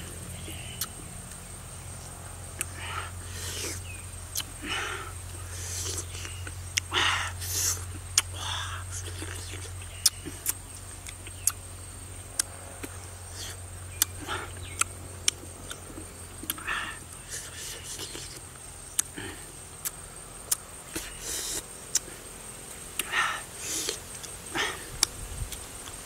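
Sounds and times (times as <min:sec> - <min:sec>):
breathy mouth sounds: 0:00.0 - 0:01.1, 0:02.6 - 0:11.6, 0:12.4 - 0:22.2, 0:23.0 - 0:26.0
steady low hum: 0:00.0 - 0:26.0
eating smacks and clicks: 0:00.7 - 0:01.5, 0:03.5 - 0:04.5, 0:07.5 - 0:08.4, 0:09.0 - 0:11.6, 0:12.3 - 0:22.1, 0:23.0 - 0:26.0.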